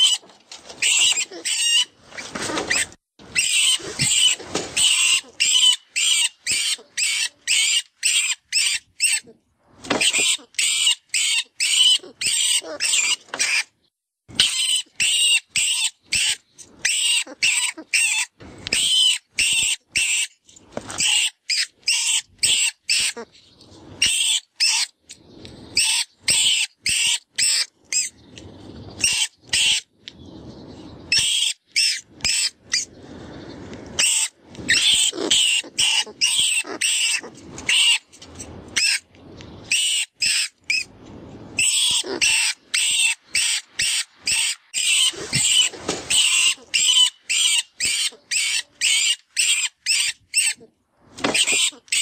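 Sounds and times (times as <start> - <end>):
rat squealing in distress: 0.0 - 1.9, 2.5 - 9.3, 9.9 - 13.7, 14.4 - 20.3, 21.0 - 23.3, 24.0 - 24.9, 25.8 - 28.2, 31.1 - 32.9, 34.0 - 39.0, 41.6 - 50.7, 51.3 - 52.0.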